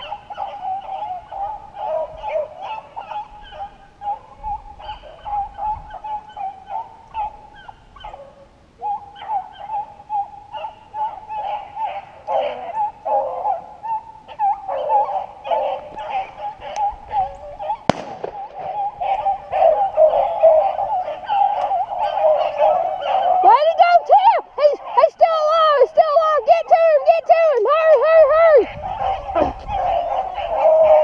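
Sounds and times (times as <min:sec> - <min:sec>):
hounds baying: 0:00.0 - 0:31.0
sharp gunshot: 0:17.9 - 0:18.7.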